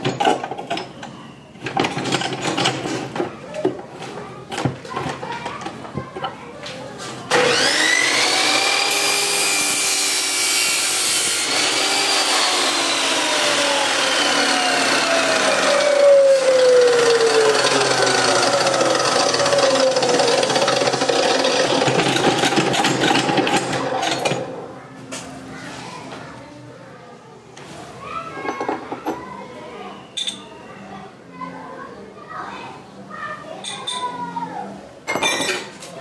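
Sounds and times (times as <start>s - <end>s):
cut-off saw motor whirring: 7.3s - 21.6s.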